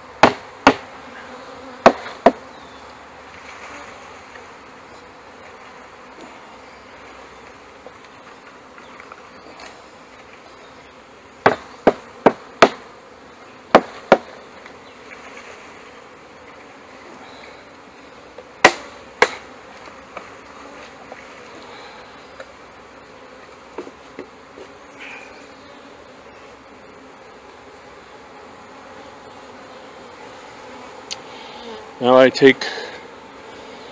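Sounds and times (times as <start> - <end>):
bees buzzing: 0.0 - 33.9
knocks on wooden box: 0.2 - 0.8, 1.8 - 2.4, 11.4 - 12.8, 13.7 - 14.3.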